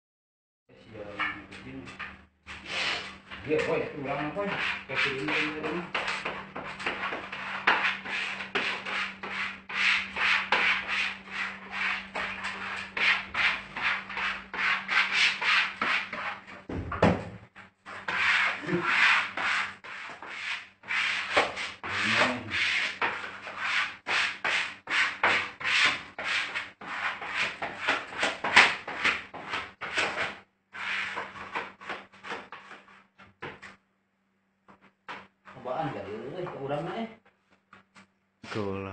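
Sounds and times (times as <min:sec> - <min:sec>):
brush scratching on wallpaper: 0:02.5 - 0:16.6, 0:17.6 - 0:33.1.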